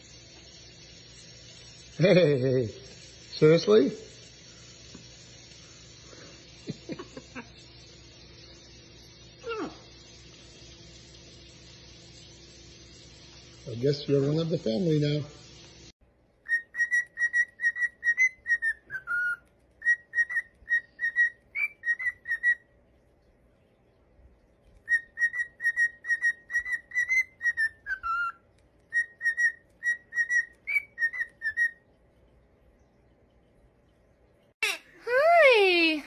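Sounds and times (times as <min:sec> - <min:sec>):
parrot whistling a tune: 0:16.4 - 0:22.8, 0:24.8 - 0:31.9.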